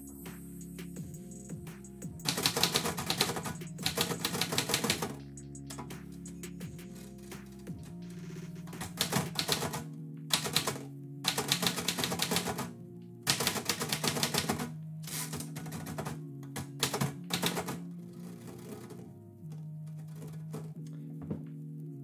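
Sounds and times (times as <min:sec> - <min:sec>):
background music: 0:00.0 - 0:22.0
typewriter keys striking: 0:02.2 - 0:05.9, 0:08.8 - 0:12.7, 0:13.3 - 0:17.8.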